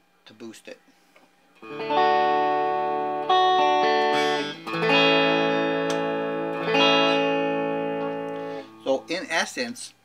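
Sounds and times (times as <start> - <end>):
electric guitar strumming chords: 1.6 - 9.5.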